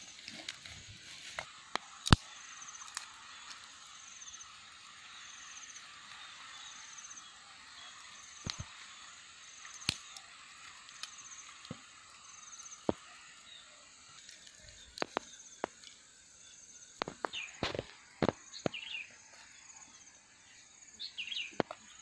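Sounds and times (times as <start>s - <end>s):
dry sticks snapping: 0.0s - 3.7s, 8.4s - 8.8s, 9.6s - 11.9s, 14.1s - 16.0s
high insect chirps: 0.0s - 22.0s
insect hiss: 0.0s - 22.0s.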